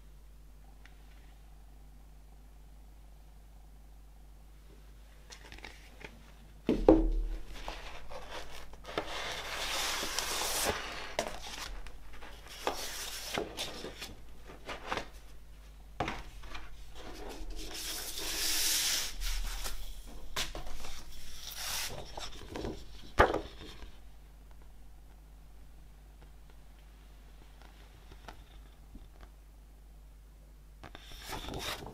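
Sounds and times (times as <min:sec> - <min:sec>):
cardboard and paper rustling: 0:05.3 - 0:15.4, 0:16.0 - 0:24.0, 0:31.0 - 0:31.9
sharp knocks: 0:06.7 - 0:07.4.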